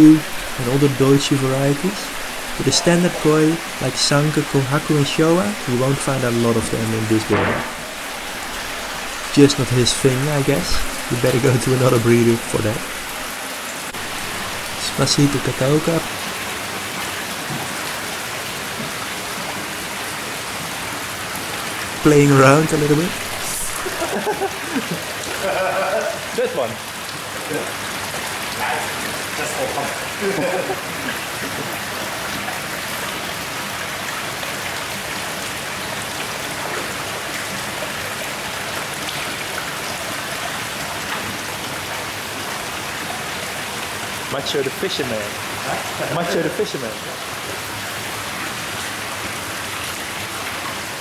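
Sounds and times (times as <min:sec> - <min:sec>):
water pouring into tank: 0:00.0 - 0:13.4.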